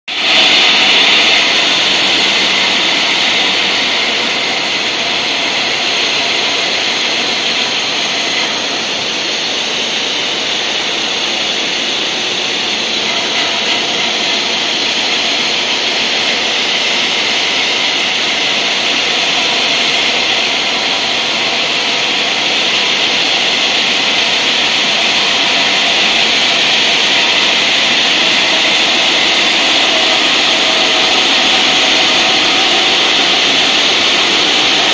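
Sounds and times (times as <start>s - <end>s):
saw blade grinding stone: 0.1s - 34.9s.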